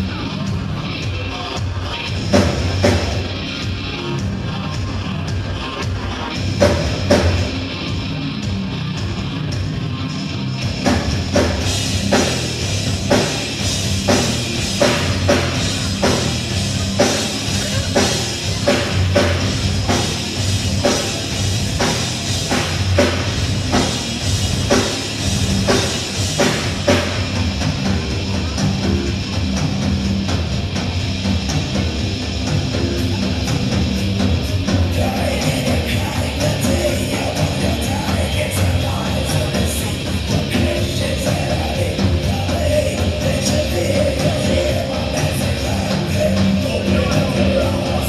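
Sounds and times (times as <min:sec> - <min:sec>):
electric guitars: 0:00.0 - 0:48.0
live rock band playing: 0:00.0 - 0:48.0.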